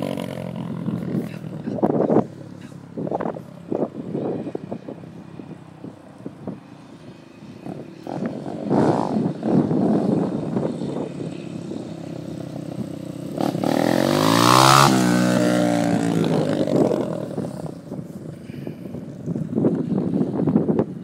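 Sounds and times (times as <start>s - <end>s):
dirt bike engine revving: 11.6s - 17.7s.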